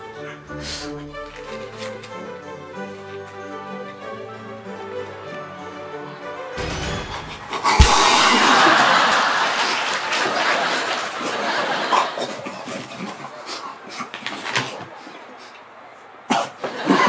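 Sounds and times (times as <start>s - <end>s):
sharp thump: 7.8s - 9.3s.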